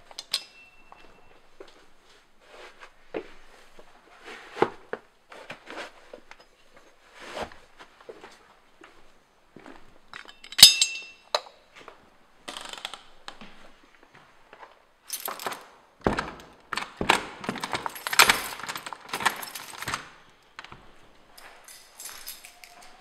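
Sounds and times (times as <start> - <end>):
sharp ringing clink: 0.2 - 1.3, 10.3 - 11.4
objects being handled: 14.4 - 23.0.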